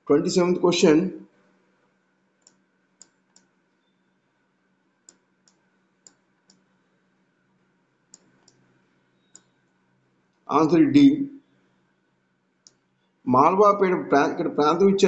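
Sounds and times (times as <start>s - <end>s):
faint sharp clicks: 2.4s - 3.5s, 5.1s - 6.7s, 8.1s - 10.4s, 12.6s - 13.1s.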